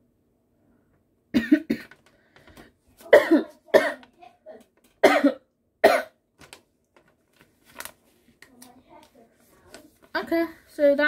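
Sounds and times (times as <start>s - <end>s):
boy coughing: 1.4s - 1.9s, 3.0s - 4.2s, 5.0s - 6.2s.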